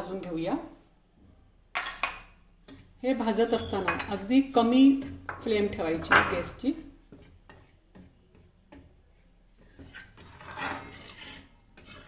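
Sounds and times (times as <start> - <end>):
spatula scraping flour in pan: 2.6 - 12.0.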